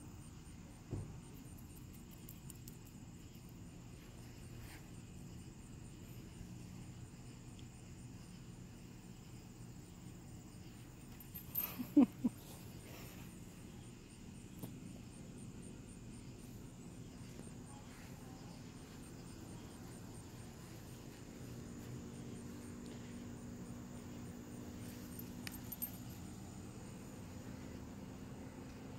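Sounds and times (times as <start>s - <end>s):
insects chirping: 0.0s - 28.9s.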